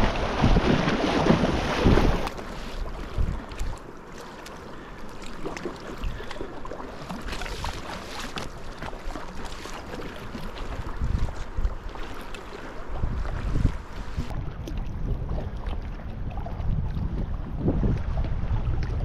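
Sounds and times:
river water rushing and splashing: 0.0s - 14.3s
paddle strokes splashing: 0.0s - 19.0s
water lapping: 0.0s - 19.0s.

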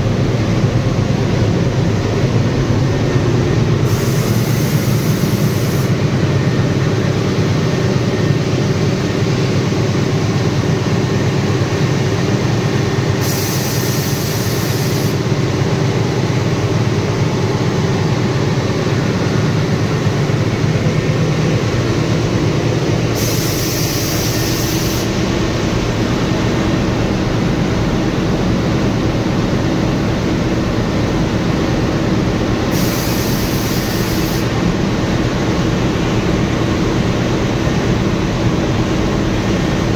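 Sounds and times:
diesel locomotive engine running: 0.0s - 39.9s
high hiss: 3.8s - 6.0s, 13.2s - 15.2s, 23.1s - 25.6s, 32.7s - 34.6s.

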